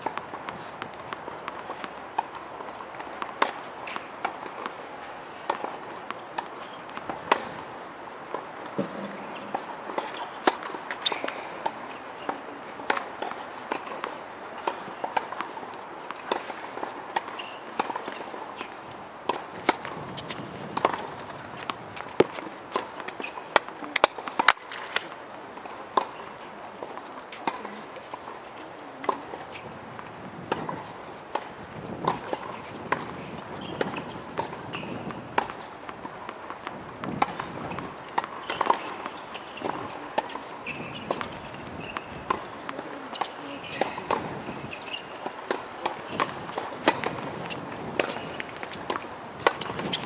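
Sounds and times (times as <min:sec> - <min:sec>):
tennis balls bouncing on court: 0:00.0 - 0:50.0
tennis balls striking racquets: 0:00.0 - 0:50.0
steady outdoor hum: 0:15.0 - 0:50.0.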